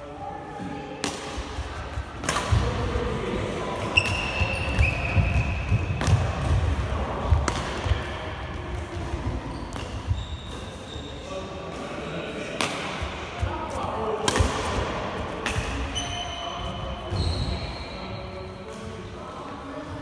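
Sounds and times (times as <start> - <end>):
racket hitting shuttlecock: 1.0 - 1.6, 2.2 - 2.8, 3.8 - 8.1, 12.6 - 13.5, 14.2 - 16.0
sports shoe squeaking: 3.9 - 5.7, 9.4 - 11.3, 15.9 - 18.5.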